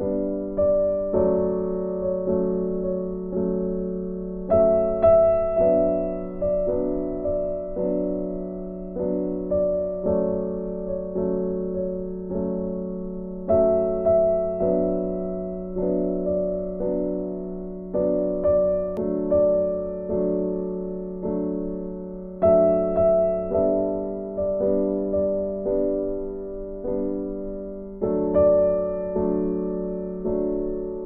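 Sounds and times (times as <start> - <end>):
slow gentle piano music: 0.0 - 31.0.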